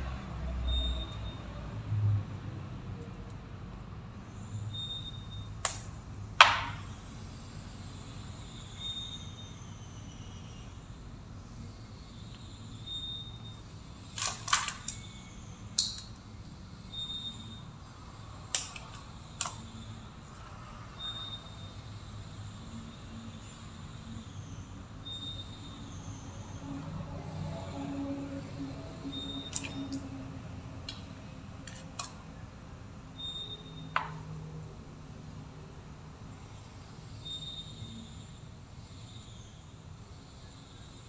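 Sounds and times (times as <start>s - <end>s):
faint high beep: 0.6s - 1.6s, 4.4s - 5.5s, 8.5s - 10.6s, 12.0s - 13.7s, 16.9s - 17.7s, 21.0s - 26.9s, 29.0s - 29.9s, 33.2s - 34.4s, 37.1s - 38.3s
clicks of pliers on wires: 5.6s - 6.8s, 15.8s - 16.2s, 18.5s - 19.8s.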